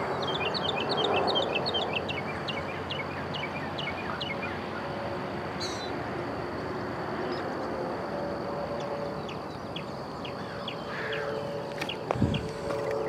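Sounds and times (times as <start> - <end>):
birds chirping: 0.0 - 4.9, 5.6 - 6.0, 8.8 - 13.0
outdoor background hiss: 0.0 - 13.0.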